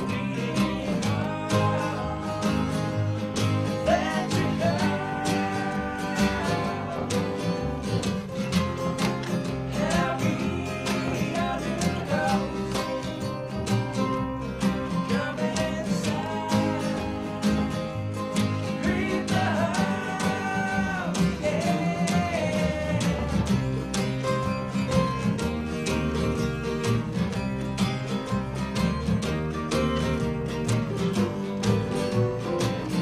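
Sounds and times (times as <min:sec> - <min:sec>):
person singing: 0:00.0 - 0:08.0, 0:09.6 - 0:13.2, 0:14.8 - 0:24.2
strummed acoustic guitar: 0:00.0 - 0:33.0.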